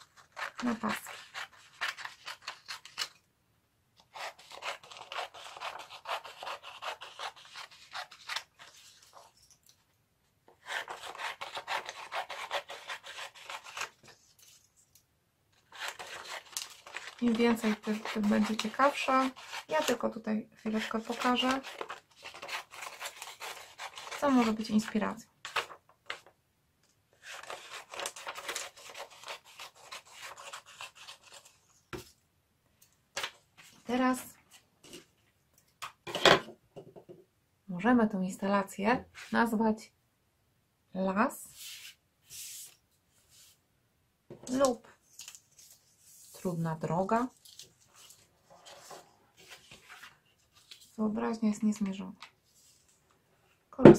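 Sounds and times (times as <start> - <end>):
scissors snipping paper: 0.0 - 3.2, 4.1 - 9.5, 15.6 - 20.0, 20.7 - 26.2, 27.2 - 31.6.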